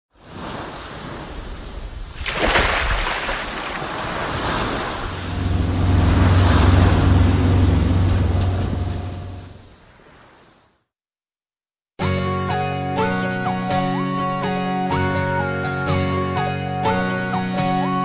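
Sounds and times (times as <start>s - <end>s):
ocean surf washing in: 0.2s - 10.6s
steady low hum: 5.0s - 9.6s.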